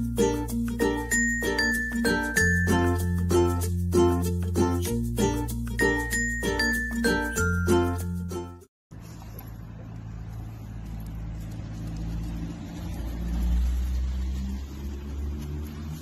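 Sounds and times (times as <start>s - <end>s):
car engine passing: 9.0s - 16.0s.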